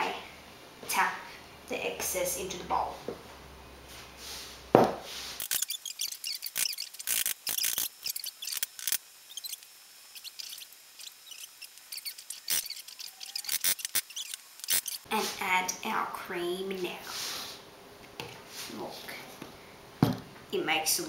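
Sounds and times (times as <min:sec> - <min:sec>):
sharp knock: 0:04.8 - 0:05.1
spatula scraping mixer beater: 0:05.3 - 0:15.4.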